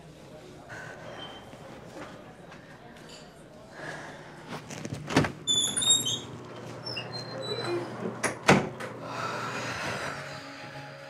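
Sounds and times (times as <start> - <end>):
door hinge squeak: 5.5 - 8.0.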